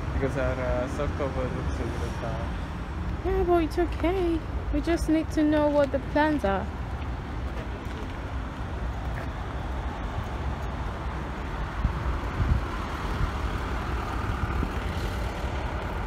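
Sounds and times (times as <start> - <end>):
low outdoor rumble: 2.8 - 16.0.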